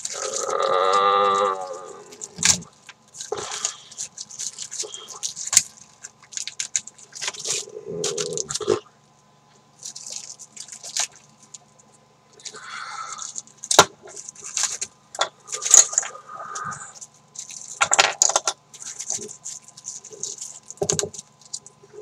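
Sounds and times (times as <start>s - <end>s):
handling rustling and scraping: 13.2s - 22.0s.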